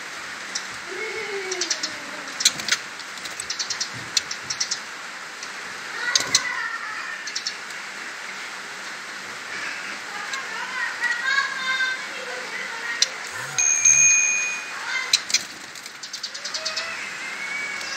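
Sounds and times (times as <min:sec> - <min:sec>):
birds ticking and tapping in cage: 0:00.4 - 0:00.8, 0:01.5 - 0:06.6, 0:10.2 - 0:12.0, 0:12.9 - 0:17.0.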